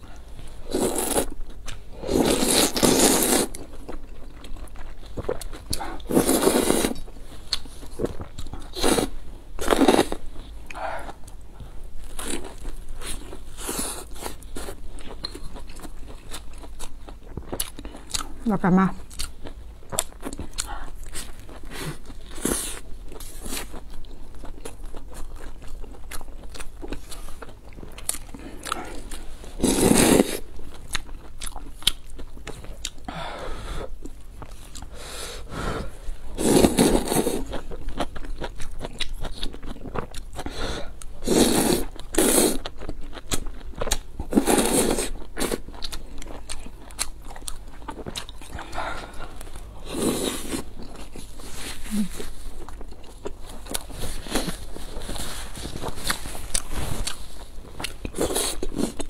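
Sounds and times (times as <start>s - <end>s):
chewing and biting food: 12.0s - 18.4s, 19.0s - 33.1s, 36.5s - 51.5s, 52.2s - 59.0s.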